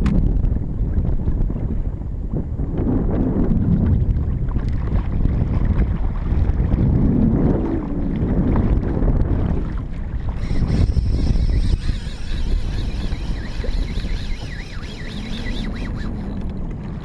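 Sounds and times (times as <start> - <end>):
wind buffeting microphone: 0.0 - 17.0
water slapping plastic hull: 3.5 - 17.0
high steady buzz: 10.3 - 16.5.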